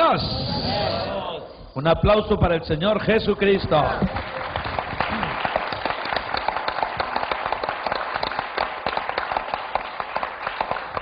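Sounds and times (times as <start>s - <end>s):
crowd applauding: 3.8s - 11.0s.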